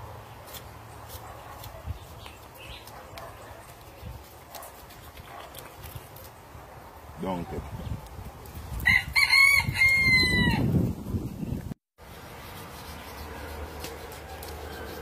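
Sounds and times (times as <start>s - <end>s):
rooster crowing: 8.8s - 10.7s.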